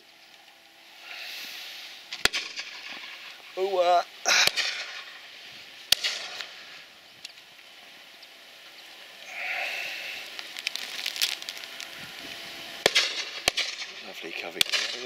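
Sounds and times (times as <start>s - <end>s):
shotguns firing: 2.1s - 3.4s, 4.3s - 5.2s, 5.9s - 6.6s, 12.8s - 15.0s.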